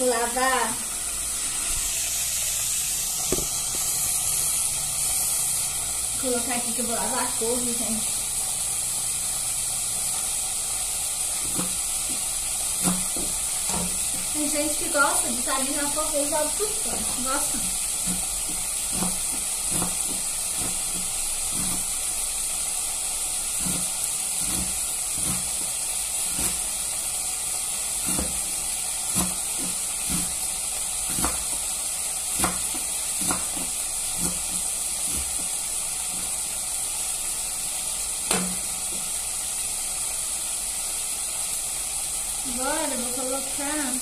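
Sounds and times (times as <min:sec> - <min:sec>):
steady hiss: 0:00.0 - 0:44.0
knife chopping on cutting board: 0:11.4 - 0:14.3, 0:18.0 - 0:21.9, 0:23.6 - 0:25.7, 0:26.3 - 0:26.7, 0:28.0 - 0:30.4, 0:31.0 - 0:31.7, 0:32.3 - 0:35.5, 0:38.3 - 0:39.1.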